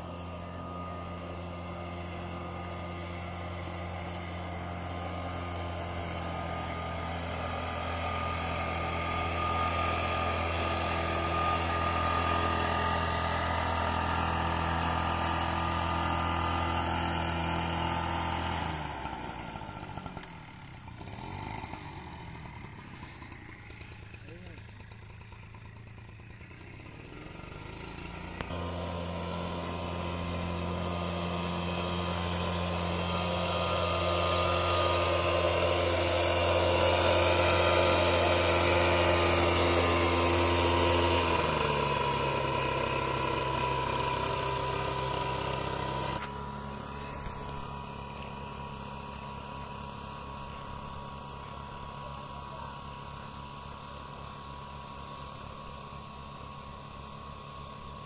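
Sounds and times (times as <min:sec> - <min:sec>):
blower rushing: 0:00.0 - 0:58.0
two-stroke power duster engine: 0:00.0 - 0:58.0.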